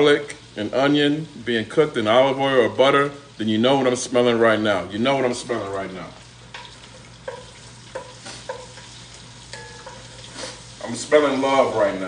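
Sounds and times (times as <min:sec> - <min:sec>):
onions sizzling in butter: 0:00.0 - 0:12.0.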